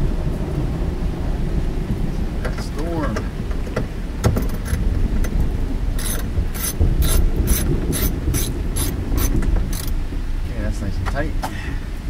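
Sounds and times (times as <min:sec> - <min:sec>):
rain and storm rumble: 0:00.0 - 0:12.0
hand ratchet clicking: 0:06.0 - 0:09.9.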